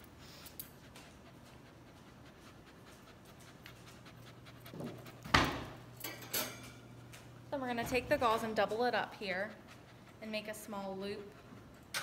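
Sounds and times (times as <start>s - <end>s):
dog panting: 0.0s - 5.3s, 8.6s - 12.0s.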